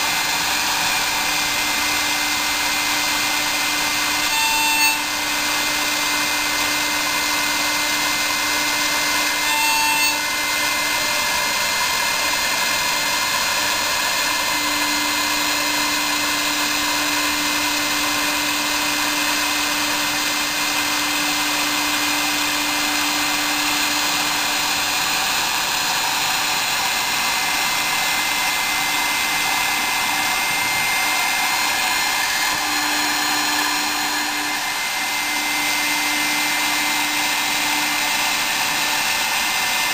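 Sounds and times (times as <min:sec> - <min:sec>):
high whine: 0:00.0 - 0:39.9
milling machine spindle running: 0:00.0 - 0:39.9.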